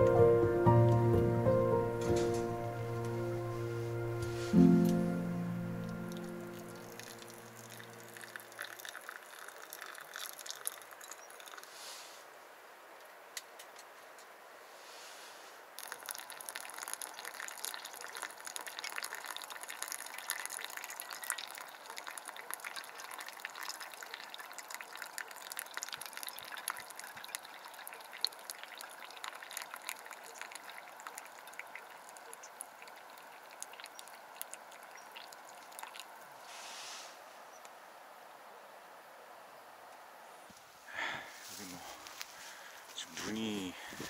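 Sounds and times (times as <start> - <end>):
water trickling onto coffee grounds: 3.4 - 4.8, 5.8 - 11.9, 15.7 - 36.8, 41.3 - 44.0.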